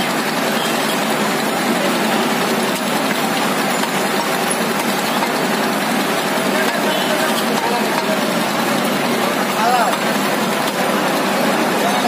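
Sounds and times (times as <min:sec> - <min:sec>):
engine running: 0:00.0 - 0:12.0
street din: 0:00.0 - 0:12.0.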